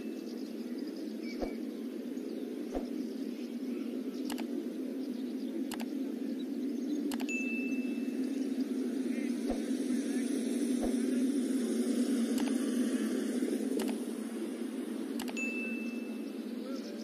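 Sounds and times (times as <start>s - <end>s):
low noise bed: 0.0s - 17.0s
sharp clicks: 4.2s - 4.6s, 5.7s - 6.0s, 7.1s - 7.3s, 12.3s - 12.7s, 13.7s - 14.1s, 15.2s - 15.4s.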